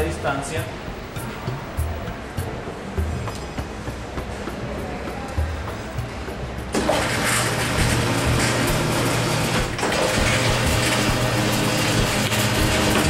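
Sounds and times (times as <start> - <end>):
dough sheeter motor humming: 6.7 - 13.0.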